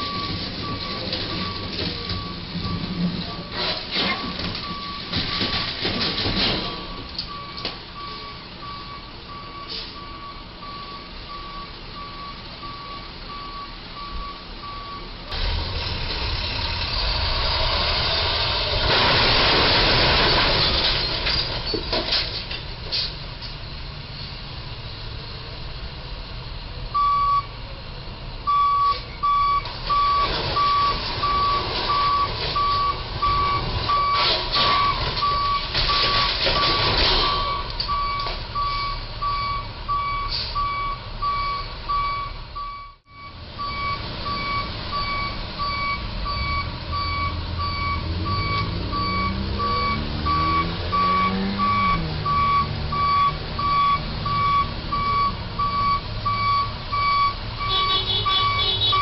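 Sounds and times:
truck reversing alarm beeping: 0:00.0 - 0:15.7, 0:26.9 - 0:27.6, 0:28.4 - 0:59.0.

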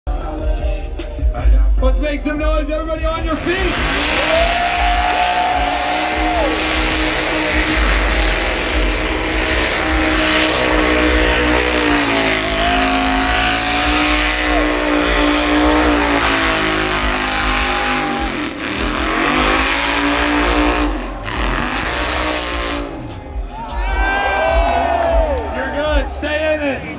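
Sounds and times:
car engine revving high: 0:03.0 - 0:23.6.

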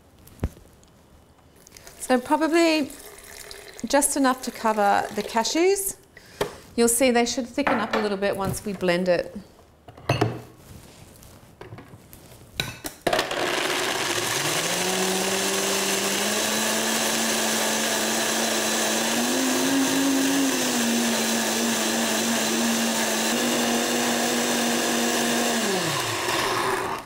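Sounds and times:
blender motor running: 0:13.1 - 0:27.0.

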